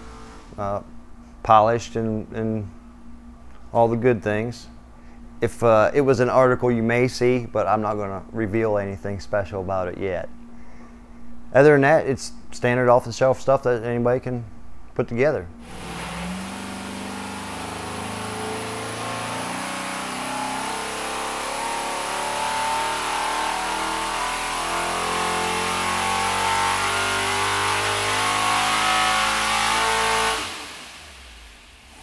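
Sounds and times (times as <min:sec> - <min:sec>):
engine revving under load: 0:00.0 - 0:00.6, 0:15.6 - 0:32.0.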